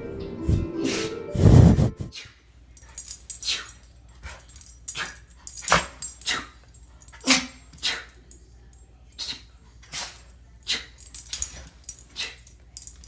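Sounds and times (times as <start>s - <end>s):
dog sneezing: 7.2s - 8.1s, 9.2s - 11.0s.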